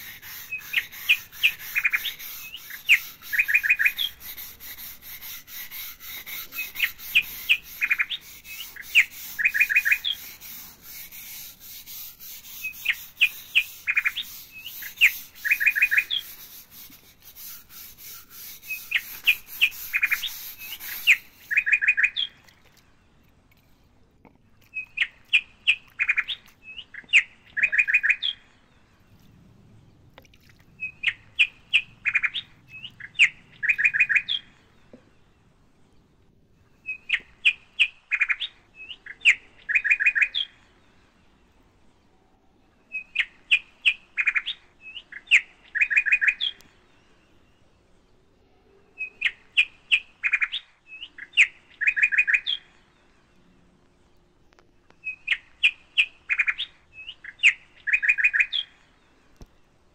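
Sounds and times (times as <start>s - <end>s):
bird chirping and trilling: 0.0s - 22.4s, 30.8s - 34.7s, 42.9s - 46.7s, 55.0s - 58.9s.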